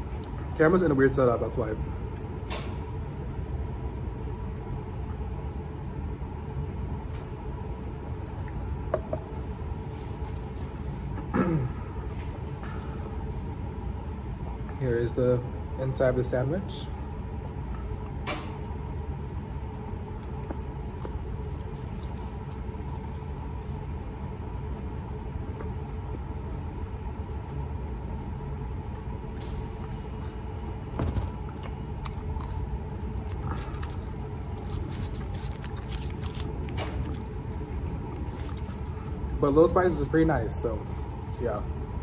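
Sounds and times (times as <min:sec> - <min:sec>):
restaurant dining room hum: 0:00.0 - 0:42.0
eating clicks and crunches: 0:02.0 - 0:02.6, 0:20.2 - 0:23.5, 0:31.4 - 0:39.6.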